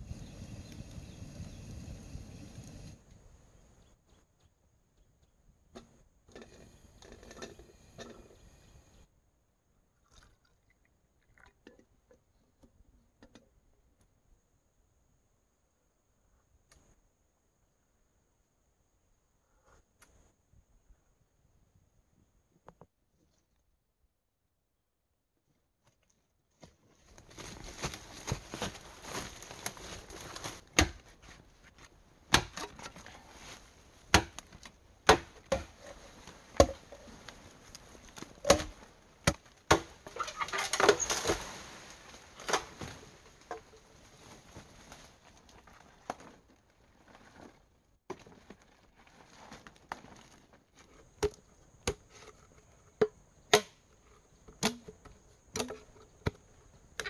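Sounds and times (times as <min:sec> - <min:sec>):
leaves and twigs rustling underfoot: 0:26.0 - 0:57.0
machete chopping bamboo: 0:30.7 - 0:31.1, 0:32.3 - 0:32.9, 0:34.1 - 0:35.7, 0:36.6 - 0:36.9, 0:38.4 - 0:41.5, 0:53.5 - 0:53.8, 0:54.6 - 0:54.9.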